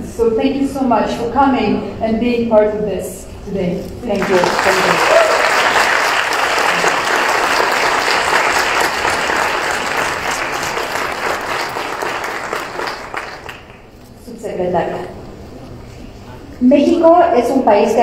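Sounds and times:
audience applauding: 0:04.2 - 0:13.9.

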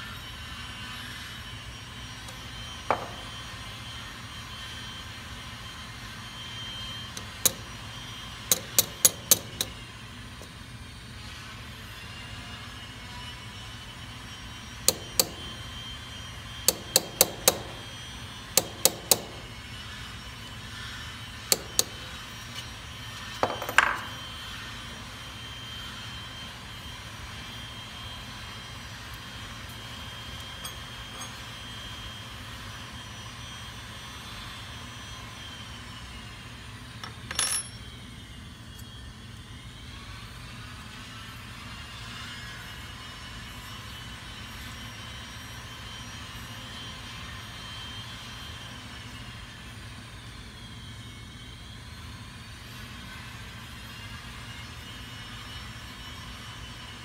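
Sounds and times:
hammer tapping metal punch: 0:02.9 - 0:03.2, 0:08.5 - 0:09.8, 0:16.7 - 0:17.8, 0:18.6 - 0:19.4, 0:23.4 - 0:24.1.

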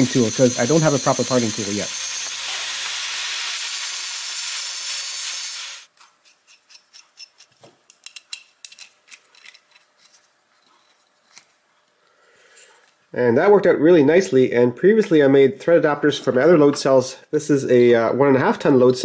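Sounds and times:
angle grinder cutting steel: 0:00.0 - 0:05.9
small metallic clicks and scrapes: 0:05.9 - 0:11.6.

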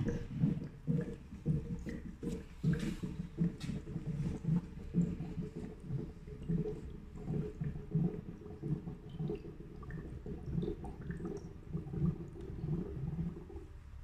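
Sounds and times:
liquid gurgling through tubes: 0:00.0 - 0:14.0.

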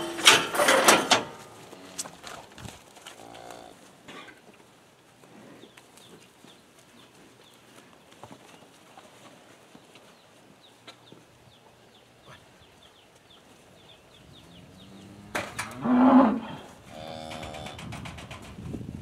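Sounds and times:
cattle mooing: 0:14.7 - 0:17.8.

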